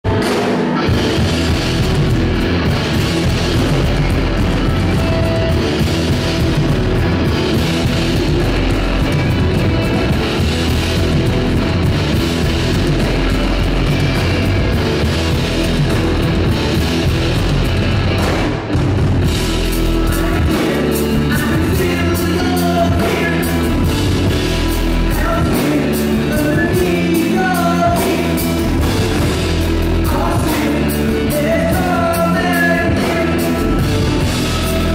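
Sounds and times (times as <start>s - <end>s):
live rock band playing: 0.0s - 34.9s
person singing: 19.5s - 34.9s.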